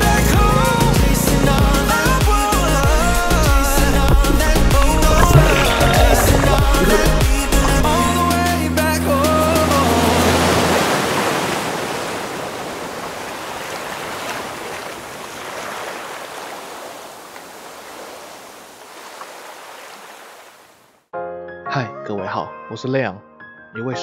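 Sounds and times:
ocean surf hissing: 2.0s - 8.2s.

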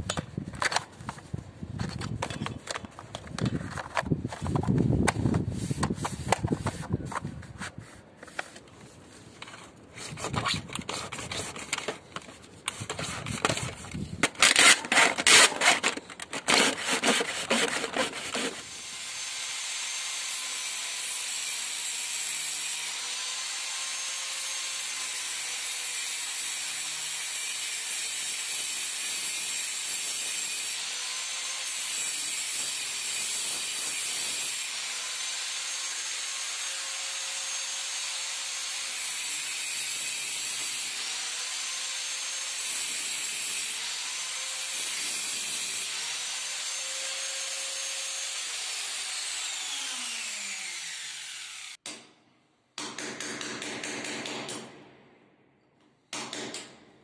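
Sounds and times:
scouring pad scraping a rail: 14.5s - 18.6s.

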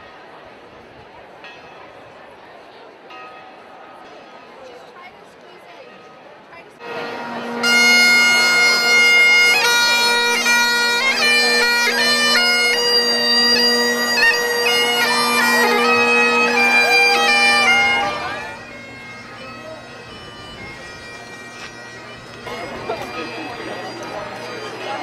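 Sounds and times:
bagpipe playing a march: 6.8s - 25.0s.

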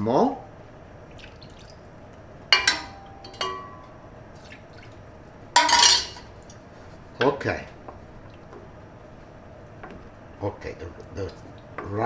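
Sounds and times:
ladle clinking against pot: 2.5s - 4.0s.

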